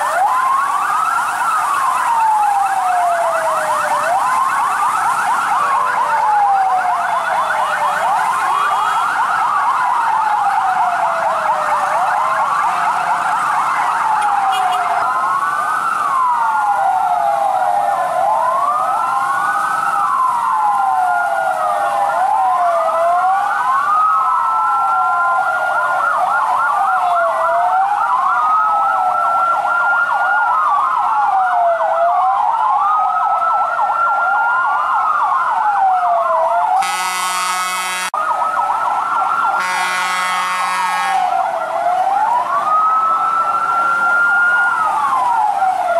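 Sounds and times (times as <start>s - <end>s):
fast siren yelp: 0.0s - 45.9s
sirens wailing: 0.0s - 45.9s.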